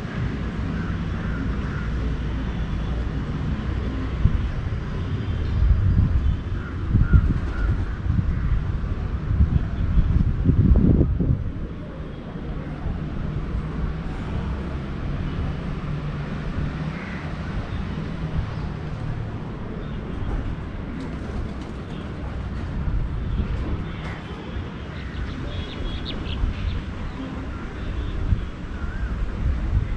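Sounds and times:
low rumble of city traffic: 0.0 - 29.9
wind on microphone: 4.0 - 14.7, 25.4 - 29.9.

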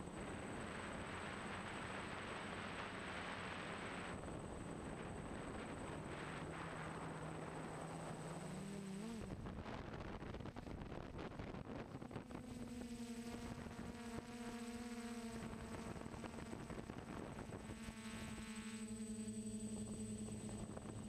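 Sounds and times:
drone motors humming: 0.0 - 9.9, 11.9 - 21.0.

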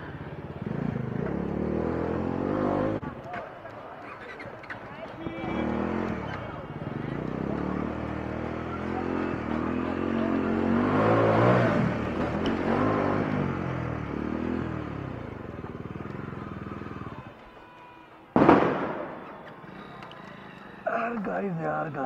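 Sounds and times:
motorcycle engine revving: 0.0 - 3.1, 5.4 - 17.2.

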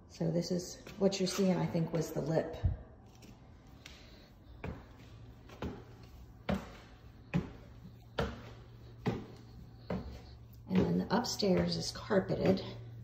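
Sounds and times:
footsteps climbing stairs: 4.6 - 13.0.

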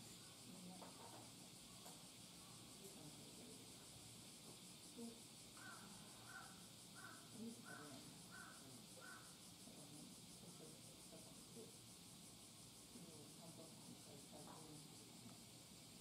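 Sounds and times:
steady hiss: 0.0 - 16.0
faint bird calls: 5.6 - 9.4.

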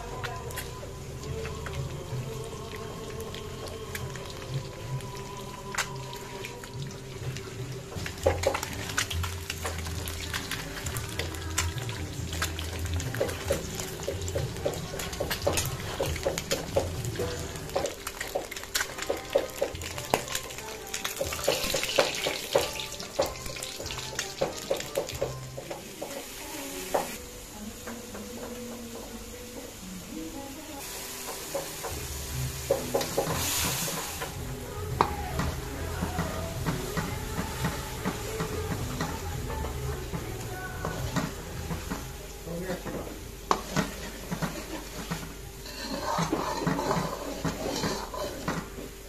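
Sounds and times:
eggs sizzling in hot fat: 0.0 - 49.0
metal spatula scraping pan: 43.5 - 48.7.

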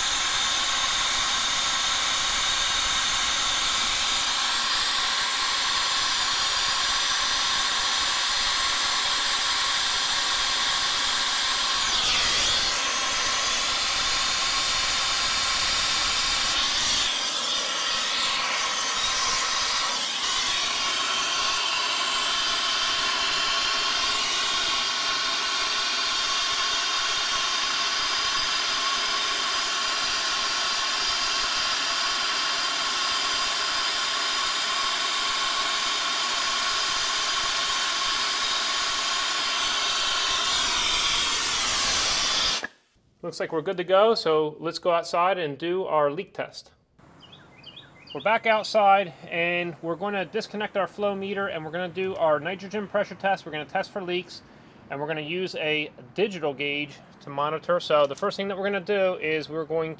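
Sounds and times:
torch flame hissing: 0.0 - 42.8.

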